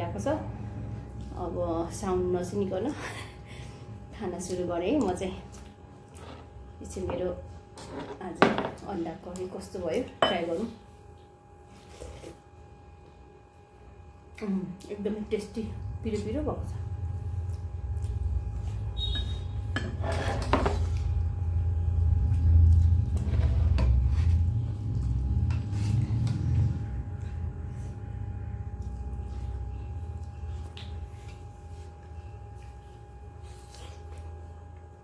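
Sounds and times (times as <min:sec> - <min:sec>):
faint hum: 0:00.0 - 0:35.0
low steady rumble: 0:13.8 - 0:35.0.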